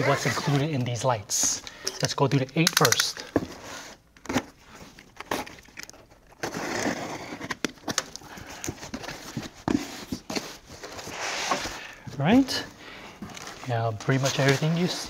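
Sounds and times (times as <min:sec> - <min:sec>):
sharp clicks: 0:02.5 - 0:03.3
box cutter scraping cardboard: 0:06.4 - 0:07.7.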